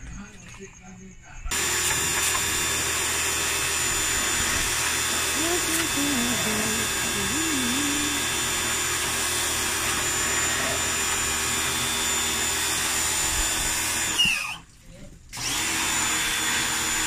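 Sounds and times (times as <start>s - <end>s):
pressure washer motor and pump: 1.5s - 14.7s, 15.3s - 17.0s
water jet spraying on metal: 1.5s - 14.7s.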